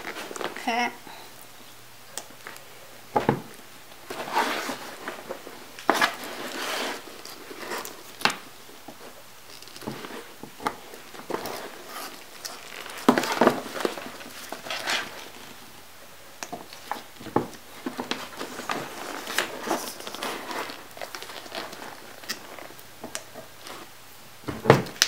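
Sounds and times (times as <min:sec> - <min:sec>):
rustling: 0:00.0 - 0:25.0.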